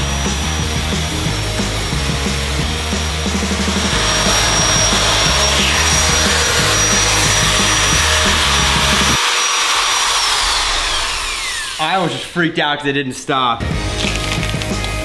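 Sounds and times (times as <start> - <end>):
music with a beat: 0.0 - 9.2, 13.6 - 15.0
electric metal shear whining: 0.0 - 12.7.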